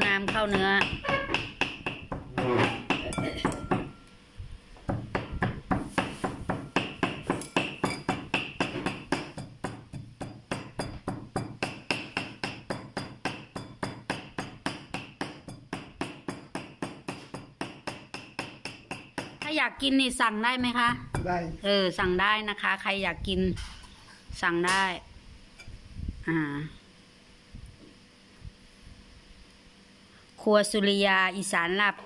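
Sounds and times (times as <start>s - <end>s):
cleaver chopping meat on wood: 0.2s - 3.9s, 4.9s - 19.5s.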